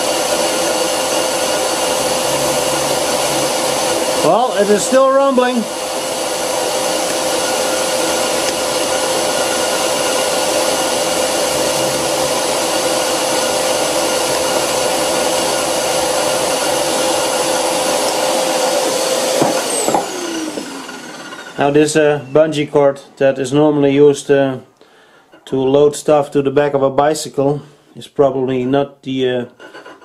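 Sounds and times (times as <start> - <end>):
lathe slowing down: 0.0 - 22.0
lathe turning metal disc: 0.0 - 22.1.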